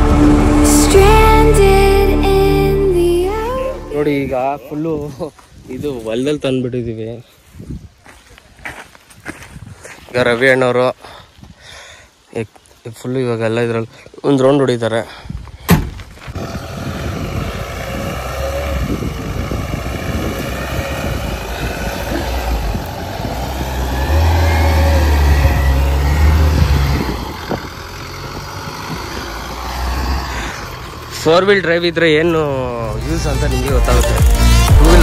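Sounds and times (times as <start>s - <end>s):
diesel engine pulling through soil: 0.0s - 4.5s, 16.0s - 35.0s
car door shutting: 15.7s - 16.0s.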